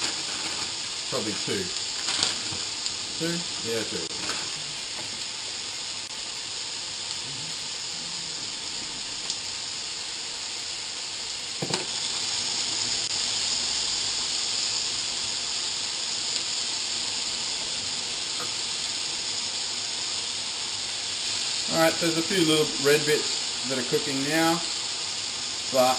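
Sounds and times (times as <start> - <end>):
meat sizzling in a frying pan: 0.0 - 25.9
knock: 11.6 - 11.9.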